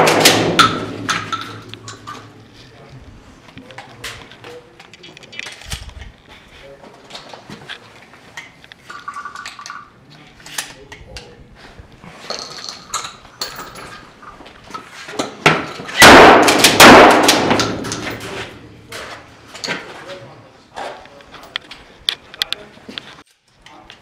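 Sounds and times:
loud shotgun shots: 0.0 - 1.7, 16.0 - 18.2
handling knocks and clicks: 0.0 - 6.4, 16.6 - 20.0.

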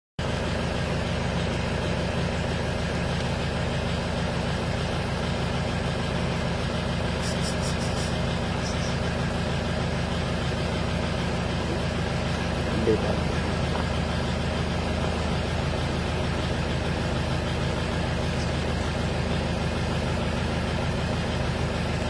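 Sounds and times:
vehicle engine idling: 0.2 - 22.0
short high chirps: 7.2 - 9.0.

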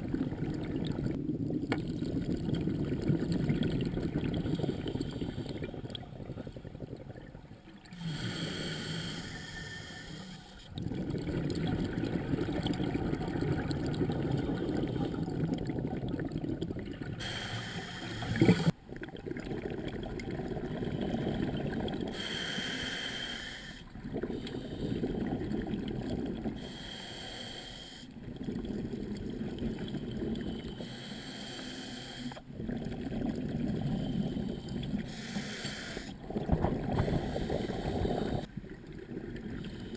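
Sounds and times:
exhaled bubbles rumbling: 0.0 - 8.8, 10.7 - 22.3, 23.9 - 26.7, 28.2 - 30.9, 32.4 - 35.3, 36.1 - 39.9
regulator hiss on inhale: 8.0 - 10.7, 17.2 - 18.7, 22.1 - 25.2, 26.6 - 28.2, 29.8 - 32.5, 33.8 - 36.2, 36.9 - 38.5, 39.6 - 39.9.

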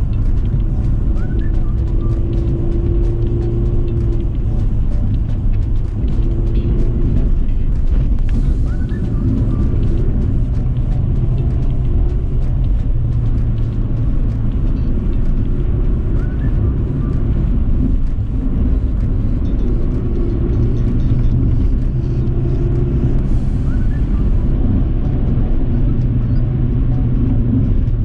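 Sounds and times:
car engine rumble: 0.0 - 28.0
road noise: 0.0 - 28.0.

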